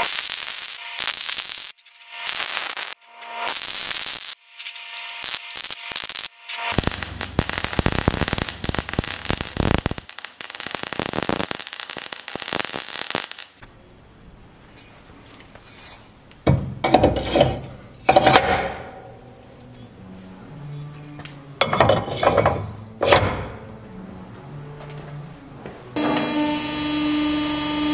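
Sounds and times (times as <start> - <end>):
welding arc crackling: 0.0 - 13.6, 26.0 - 27.9
metal plate scraping and clanking: 16.9 - 18.8, 21.6 - 23.4.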